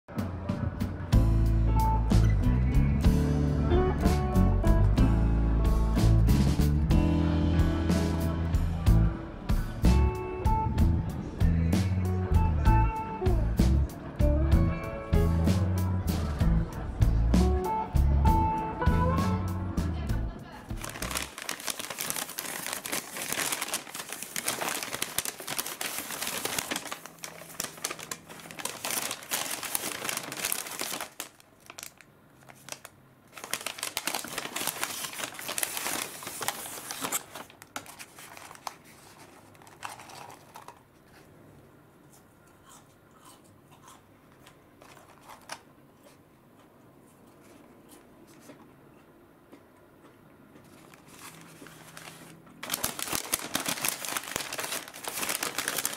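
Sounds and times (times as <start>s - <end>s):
paper bag crinkling: 20.7s - 41.3s, 44.8s - 45.6s, 50.6s - 55.9s
faint handling sounds: 20.8s - 42.6s, 44.3s - 55.9s.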